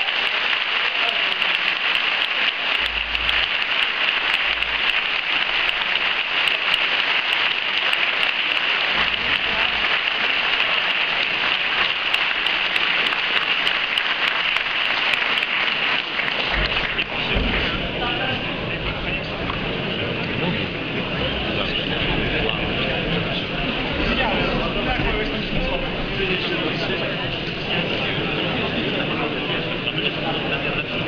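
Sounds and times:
audience applauding: 0.0 - 19.3.

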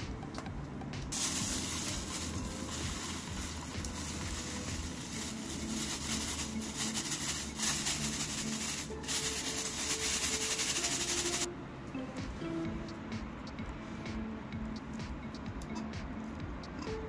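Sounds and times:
plastic bag crinkling: 1.2 - 11.5
powder pouring into glass: 1.2 - 11.5.

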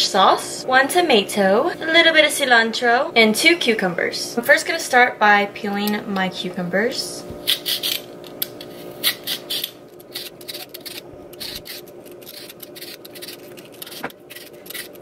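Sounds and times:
steady low hum: 0.0 - 15.0
peeler scraping cucumber skin: 7.5 - 8.1, 9.0 - 15.0.

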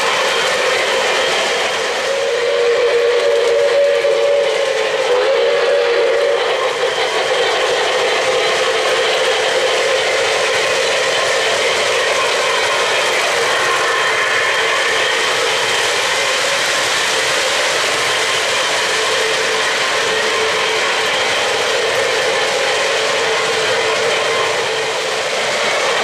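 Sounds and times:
locomotive whistle: 0.0 - 26.0
model trains rumbling on track: 0.0 - 26.0.

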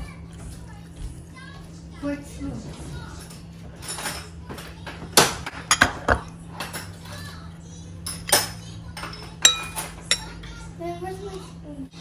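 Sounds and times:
cutlery clinking against bowls: 3.2 - 7.2, 8.0 - 10.6.

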